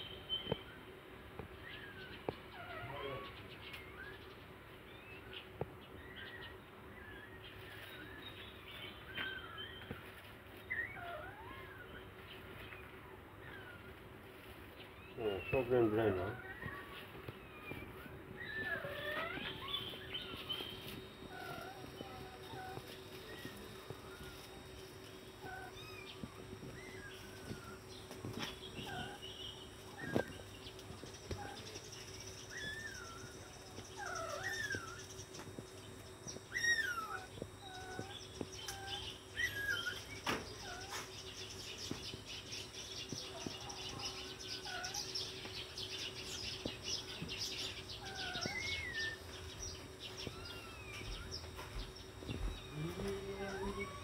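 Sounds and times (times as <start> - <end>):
kittens mewing: 15.6 - 30.5, 32.5 - 35.6, 36.2 - 41.1, 44.0 - 45.2, 47.9 - 51.6, 52.2 - 54.0.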